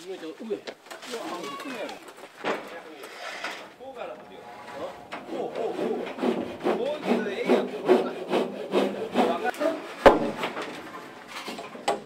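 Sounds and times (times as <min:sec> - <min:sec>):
wood scraping on wood: 0:03.0 - 0:09.7.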